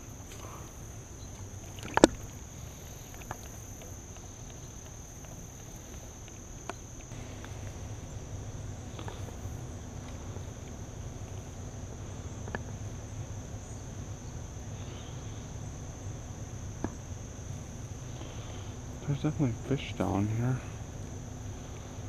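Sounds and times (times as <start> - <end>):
high-pitched insect drone: 0.0 - 22.0
low rumble: 7.1 - 16.7.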